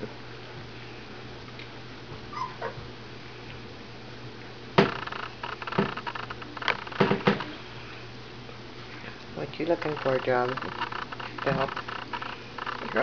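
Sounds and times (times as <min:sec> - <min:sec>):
puppy squeak: 0:02.3 - 0:02.8
sharp clicks and rustles: 0:04.8 - 0:07.6, 0:09.2 - 0:13.0.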